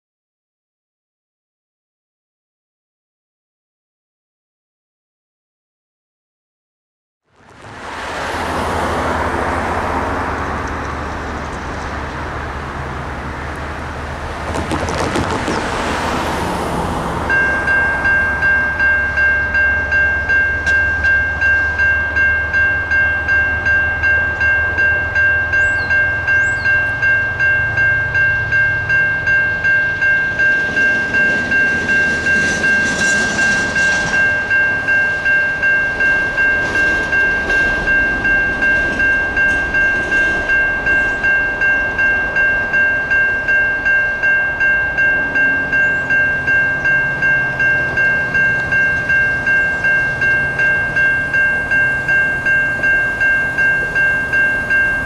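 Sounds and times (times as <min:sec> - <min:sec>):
low rumble of train: 0:07.3 - 0:55.0
electronic crossing bell ringing: 0:17.2 - 0:55.0.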